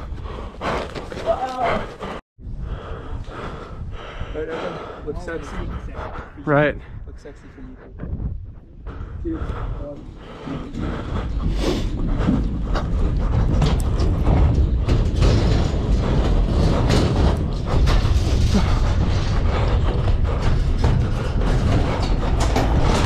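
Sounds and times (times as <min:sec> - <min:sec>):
wind rumble on microphone: 0:02.4 - 0:23.0
footsteps clanging on steel grating: 0:07.2 - 0:23.0.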